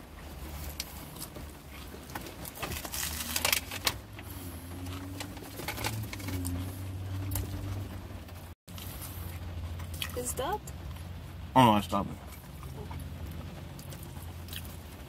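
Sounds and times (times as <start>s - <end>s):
low steady hum: 0.0s - 15.0s
burger wrapper crinkling: 0.5s - 4.2s, 4.8s - 7.8s.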